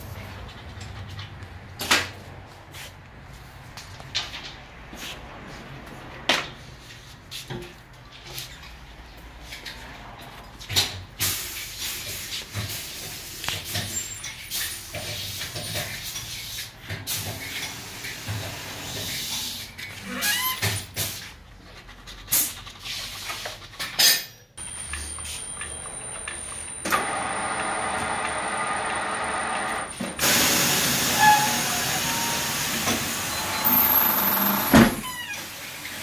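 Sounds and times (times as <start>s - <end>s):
wheel balancer motor whir: 24.6s - 35.1s.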